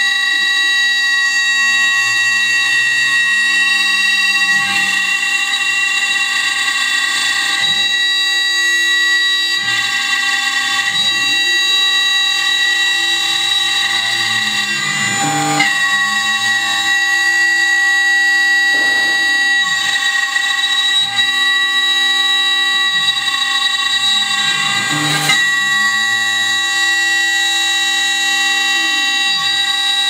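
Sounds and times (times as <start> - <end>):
router spindle whining: 0.0 - 30.0
rough wood cutting noise: 10.7 - 27.5.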